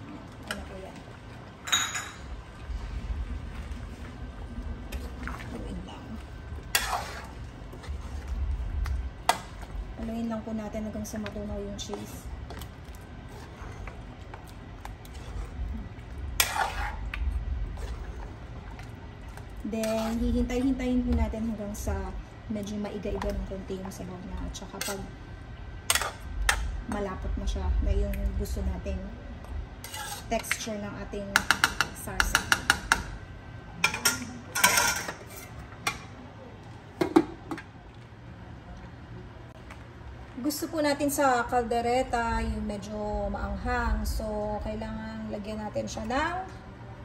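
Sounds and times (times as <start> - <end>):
spoon stirring thick stew: 6.4 - 9.7, 10.3 - 17.1, 17.8 - 21.5
metal ladle scraping pan: 6.7 - 8.2, 16.4 - 17.0, 19.7 - 20.6, 29.8 - 30.6, 34.0 - 35.6.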